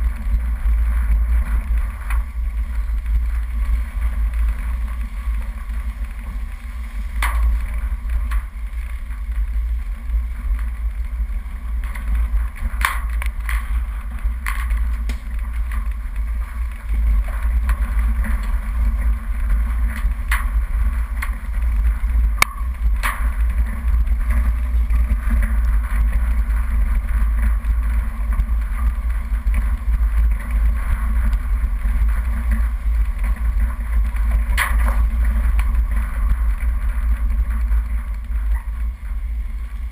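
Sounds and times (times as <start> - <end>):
vehicle engine and tyres rumbling: 0.0 - 39.9.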